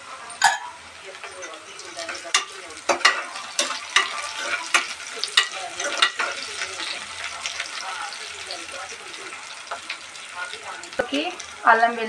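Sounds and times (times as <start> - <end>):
food frying in oil: 0.0 - 12.0
spoon clinking and scraping pot: 0.4 - 7.0.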